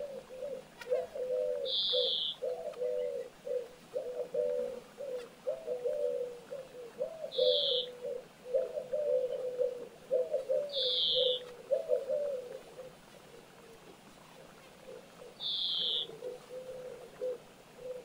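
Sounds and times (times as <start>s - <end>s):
pigeon cooing: 0.0s - 18.0s
short high bird calls: 0.4s - 3.3s, 7.3s - 8.0s, 10.2s - 12.0s, 15.3s - 18.0s.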